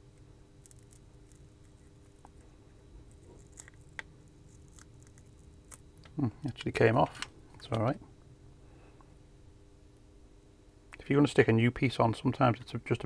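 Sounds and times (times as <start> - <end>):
tape peeling crackle: 0.6 - 2.4, 3.0 - 6.1.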